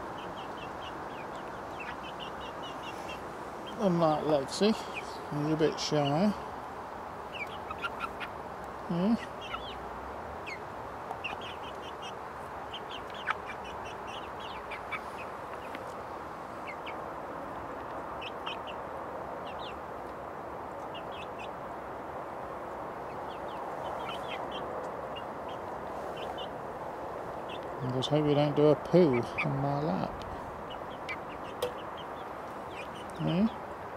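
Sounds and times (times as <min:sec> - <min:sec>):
chicks peeping: 0:00.0 - 0:06.4, 0:07.1 - 0:21.9, 0:22.6 - 0:33.9
steady background noise: 0:00.0 - 0:33.9.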